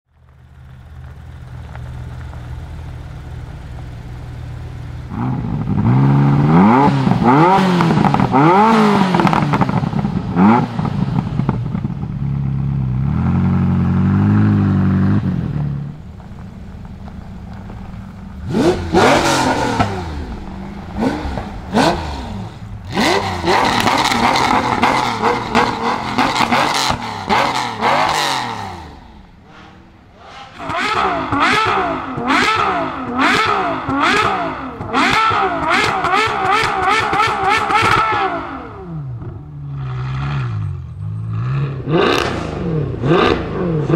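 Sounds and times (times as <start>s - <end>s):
car engine idling and revving: 0.0s - 43.9s
engine blipped in sharp revs: 5.1s - 11.9s, 18.3s - 43.9s.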